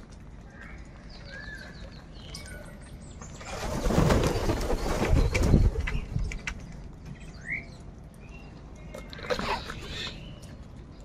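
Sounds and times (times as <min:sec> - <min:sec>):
crows wings flapping: 0:03.4 - 0:06.6.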